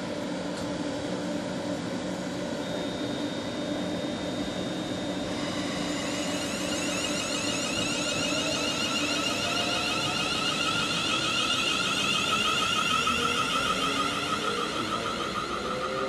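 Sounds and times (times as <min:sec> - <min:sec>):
train motors whining: 0:05.2 - 0:16.0.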